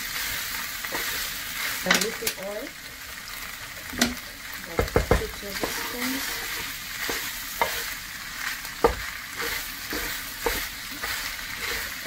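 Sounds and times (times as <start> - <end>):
food sizzling in a frying pan: 0.0 - 12.0
wooden spoon knocking on pan: 4.0 - 5.9, 8.8 - 9.1, 9.9 - 11.1.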